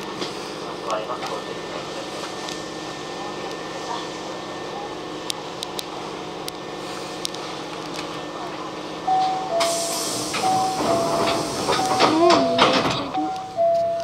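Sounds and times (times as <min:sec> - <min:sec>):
pneumatic train doors hissing: 0:09.5 - 0:13.1.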